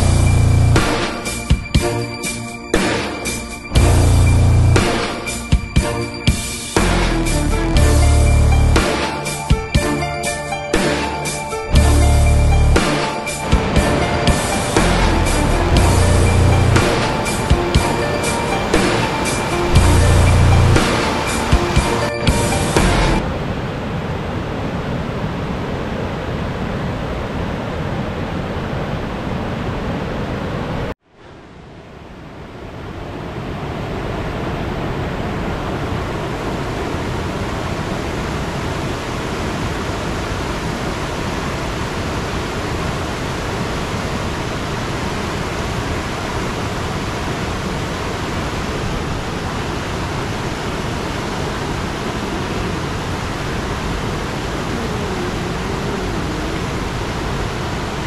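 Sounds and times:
waterfall rushing: 0.0s - 31.6s, 32.8s - 58.0s.

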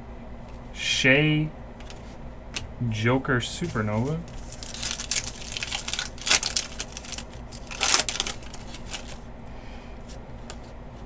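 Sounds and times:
trading cards flipped by hand: 3.6s - 9.2s.

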